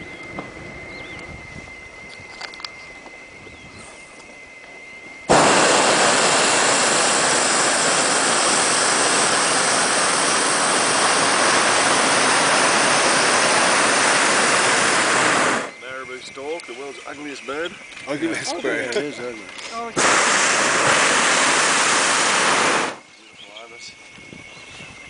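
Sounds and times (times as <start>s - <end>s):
propane burner roaring: 0.0s - 23.7s.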